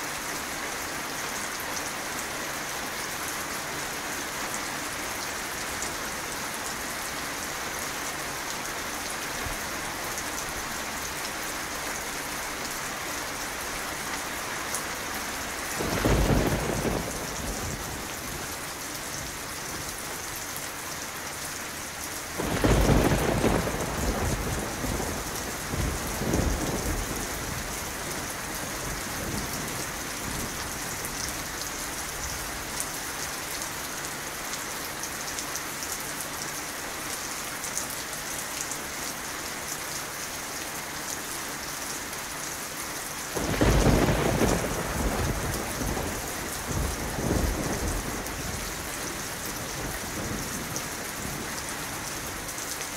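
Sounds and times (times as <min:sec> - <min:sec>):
steady rain falling: 0:00.0 - 0:52.9
low rolls of thunder: 0:15.8 - 0:18.5, 0:22.4 - 0:30.7, 0:43.4 - 0:51.5.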